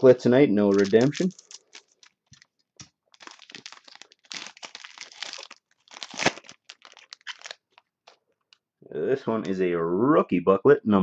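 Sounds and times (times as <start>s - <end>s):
card pack wrapper crinkling: 0.7s - 8.6s.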